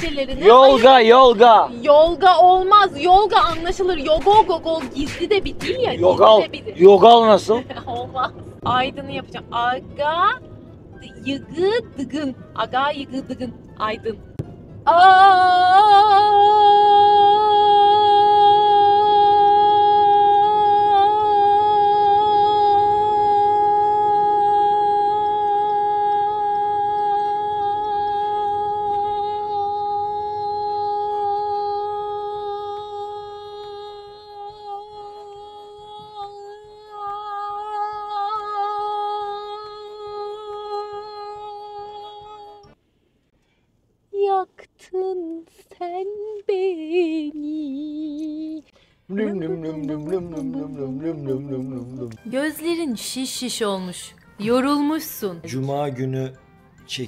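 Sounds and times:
woman singing a long held note: 14.9 - 42.8, 44.2 - 53.0.

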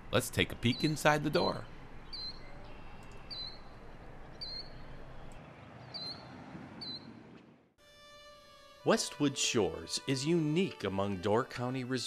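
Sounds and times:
outdoor background hiss: 0.0 - 12.0
small bird chirping: 0.6 - 7.2.

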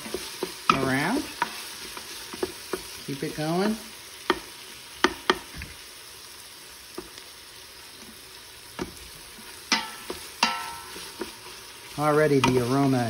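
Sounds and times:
vegetables sizzling in oil: 0.0 - 13.0
wooden spoon knocking on pot: 3.6 - 5.6.

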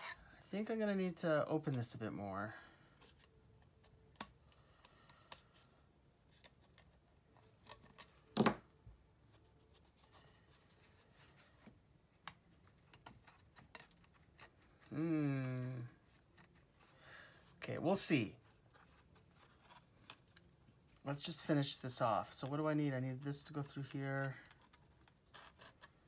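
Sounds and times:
pliers and wire clicking: 12.2 - 15.6
person speaking: 14.8 - 16.2, 17.5 - 18.5, 21.0 - 24.6.

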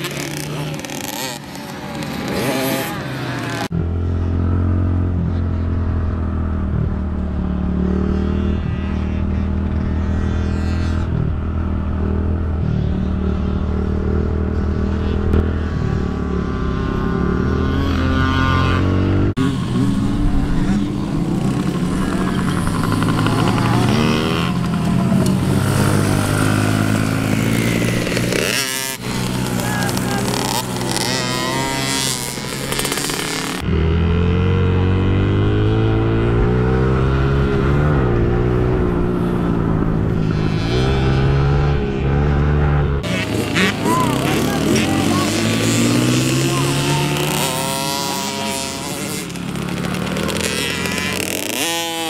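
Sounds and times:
small motorbike engine running: 0.0 - 4.6, 12.1 - 34.0, 42.7 - 52.0.

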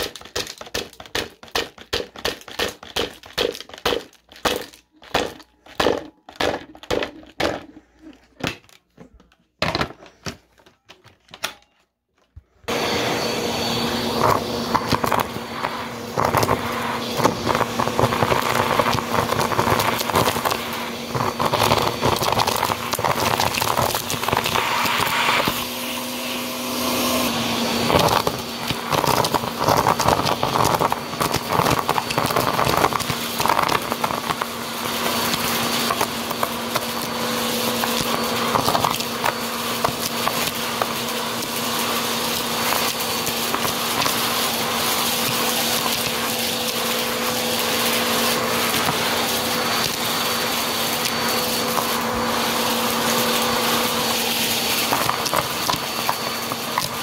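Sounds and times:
vacuum cleaner running: 12.4 - 57.0
debris rattling into vacuum nozzle: 27.6 - 57.0.

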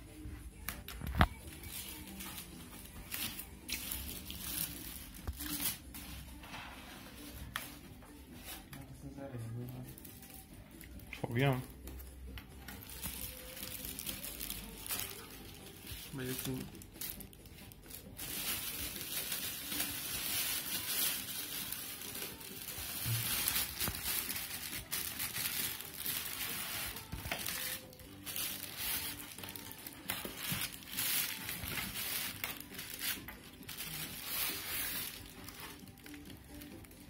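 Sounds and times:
plastic bag crinkling: 12.7 - 37.0.

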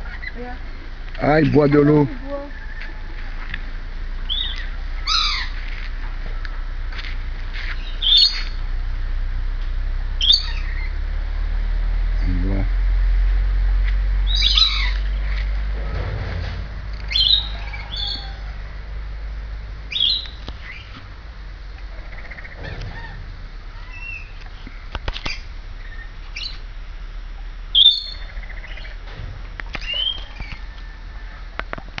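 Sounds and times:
lorikeets calling: 0.0 - 0.6, 4.2 - 5.7, 7.7 - 8.6, 10.2 - 11.0, 14.2 - 15.5, 17.1 - 18.5, 19.9 - 21.0, 21.8 - 26.7, 27.7 - 29.0, 29.8 - 30.8.

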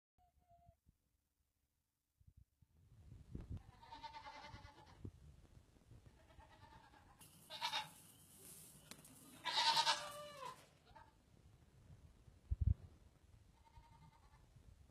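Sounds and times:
baby goats bleating: 3.6 - 5.0, 6.1 - 8.0, 9.2 - 11.1.

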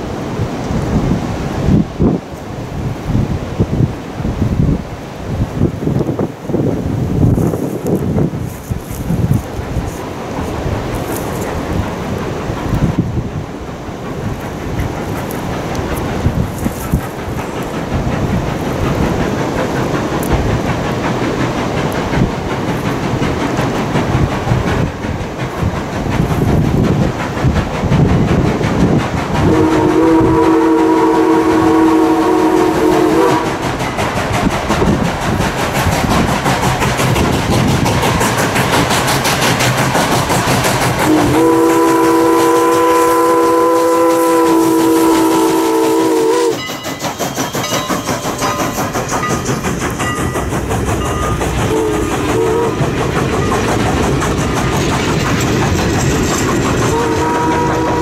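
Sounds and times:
steam locomotive exhaust: 0.0 - 58.0
train chime whistle: 29.4 - 33.5, 41.1 - 48.6, 51.1 - 52.8, 56.9 - 58.0.

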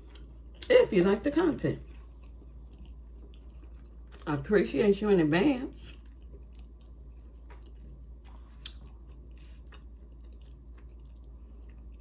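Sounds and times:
person chewing soft food: 0.0 - 0.7, 1.8 - 4.4, 5.7 - 12.0.

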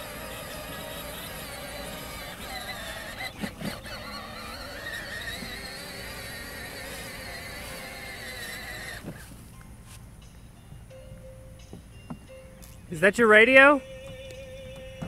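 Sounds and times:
electric motors whining: 0.0 - 9.6, 13.8 - 15.0.

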